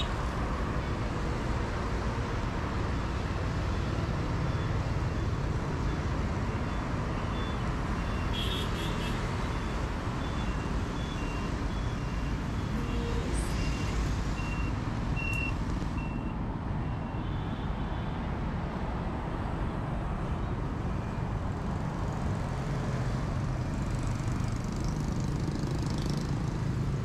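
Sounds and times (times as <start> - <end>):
road traffic: 0.0 - 27.0
truck reversing alarm beeping: 3.6 - 8.4, 9.4 - 17.4.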